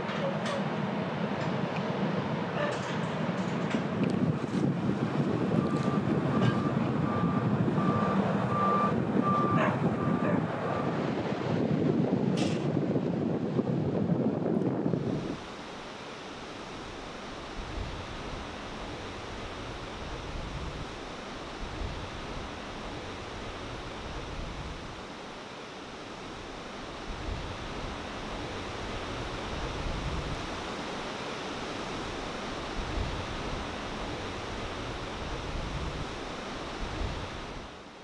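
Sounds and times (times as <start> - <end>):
wind: 0.0 - 38.0
reversing alarm beeping: 5.3 - 11.0.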